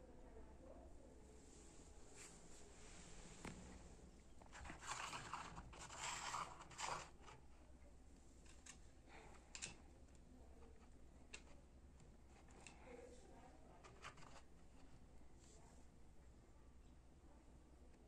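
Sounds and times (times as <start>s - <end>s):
rustling: 1.5s - 7.6s.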